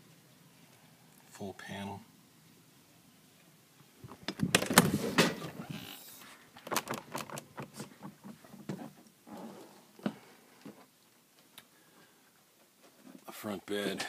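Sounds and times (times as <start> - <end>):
door opening with clunks and rattles: 4.1 - 5.7.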